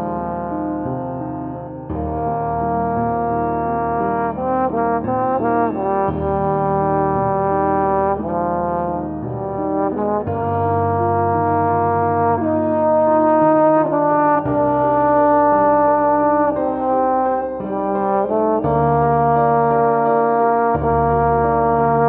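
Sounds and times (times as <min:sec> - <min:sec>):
trombones playing slow melody: 0:00.0 - 0:22.0.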